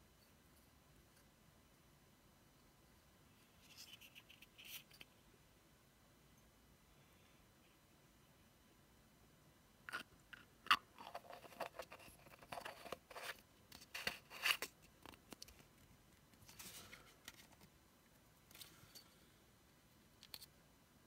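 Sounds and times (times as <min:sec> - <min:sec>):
plastic jar clicks and scrapes: 0:09.9 - 0:15.6.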